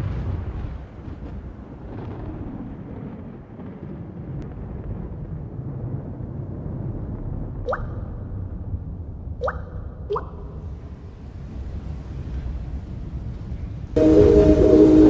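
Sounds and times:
water drop plink: 7.7 - 8.2, 9.4 - 10.7
low rumbling drone: 14.0 - 15.0.

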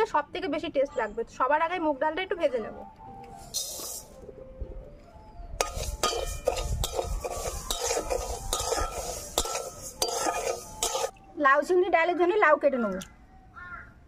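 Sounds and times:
metal spatula scraping a pan: 3.5 - 4.2, 5.6 - 11.1
pan ringing: 5.6 - 11.2
lentils rustling: 5.7 - 11.1.

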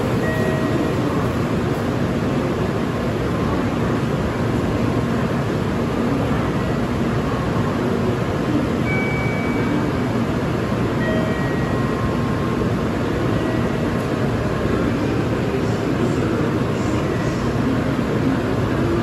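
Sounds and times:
train platform rumble: 0.0 - 19.0
faint short high tones: 8.8 - 10.0.

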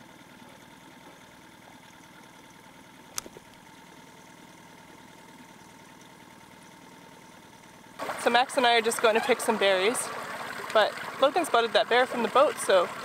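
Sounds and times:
outboard motor idling: 0.0 - 13.0
sharp click: 3.1 - 3.6.

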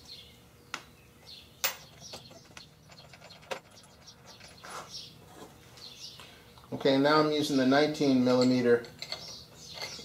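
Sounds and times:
birds chirping faintly: 0.0 - 10.0
metal hardware clinking on wood: 1.6 - 4.6, 8.2 - 10.0.

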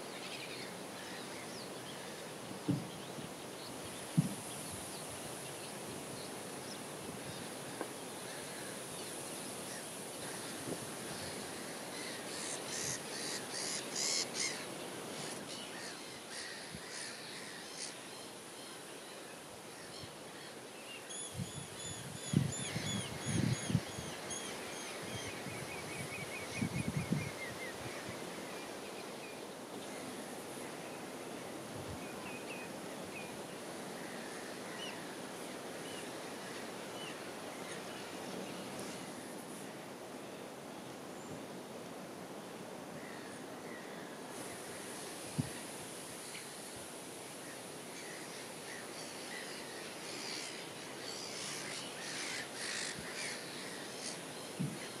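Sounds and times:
wild birds calling: 0.0 - 18.9, 47.4 - 55.0
steady hiss: 0.0 - 55.0.

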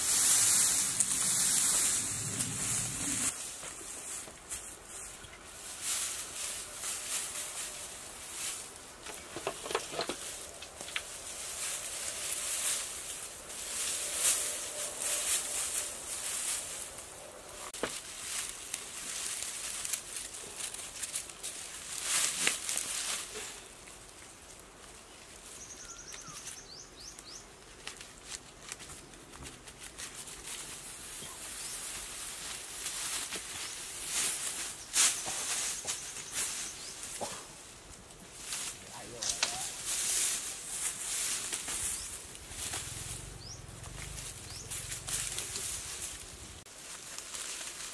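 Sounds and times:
dry grass rustling and crackling: 0.0 - 47.9
bird chirping: 25.6 - 27.5, 43.3 - 45.0.

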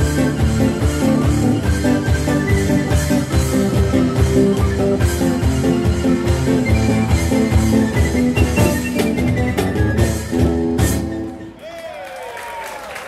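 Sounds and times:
cajon and cymbal beat: 0.0 - 11.6
held melody line: 0.0 - 11.6.

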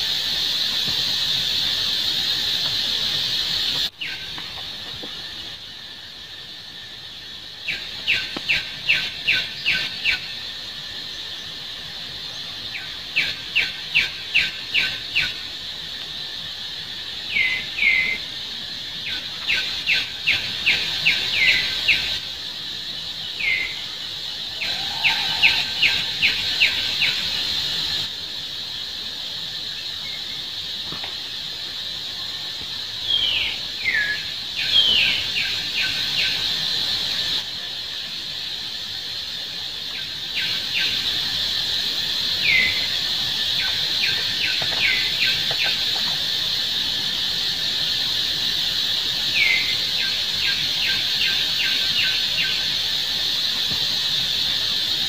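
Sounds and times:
steady high drone: 23.6 - 28.1
rapid high animal chirps: 24.4 - 28.1.

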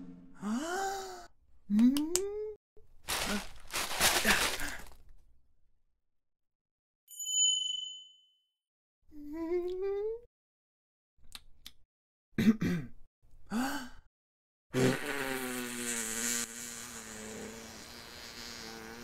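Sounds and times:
paper wrapping tearing: 3.0 - 5.0
short bright chime: 7.1 - 8.4.

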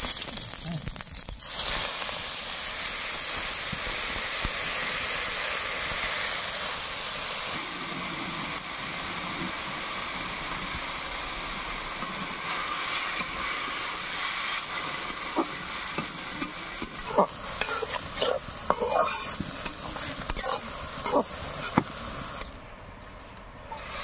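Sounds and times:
greens sizzling in hot oil: 0.0 - 22.5
spatula stirring greens: 14.2 - 21.9.

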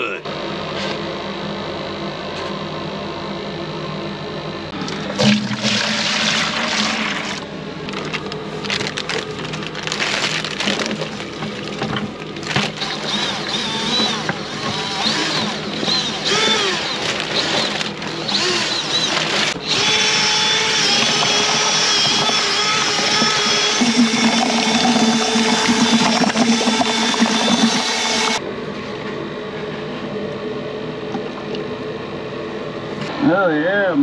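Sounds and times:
electric drill mixing in bucket: 4.8 - 7.5, 9.8 - 28.4.

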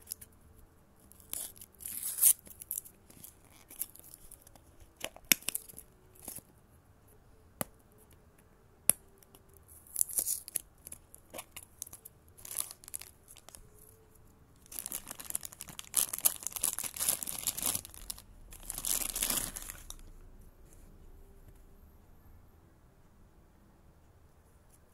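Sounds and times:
plastic bag crinkling: 9.9 - 13.7, 14.6 - 20.1
plastic bag tearing: 11.3 - 13.6, 14.6 - 20.0.

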